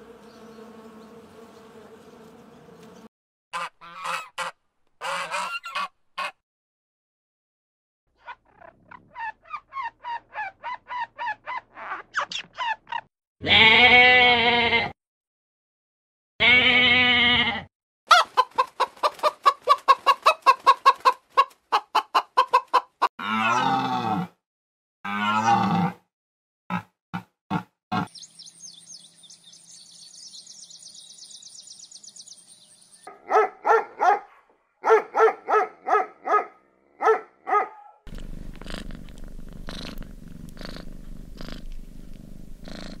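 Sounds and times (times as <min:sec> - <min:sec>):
goat bleating: 0:13.4 - 0:15.0, 0:16.4 - 0:17.7
rapid rhythmic animal calls: 0:38.1 - 0:41.8, 0:42.5 - 0:43.0
low steady rumble: 0:38.1 - 0:43.0.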